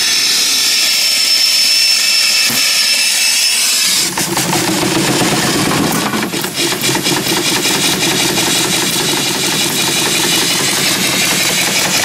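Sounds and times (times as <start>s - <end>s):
steam engine exhaust puffs: 4.4s - 12.0s.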